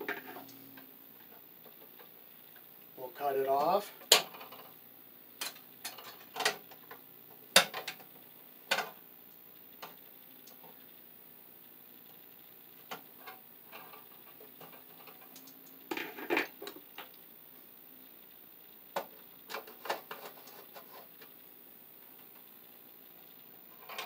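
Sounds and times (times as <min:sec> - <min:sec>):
wire strippers clicking and scraping: 0:05.4 - 0:07.0, 0:12.8 - 0:17.2, 0:19.0 - 0:21.3.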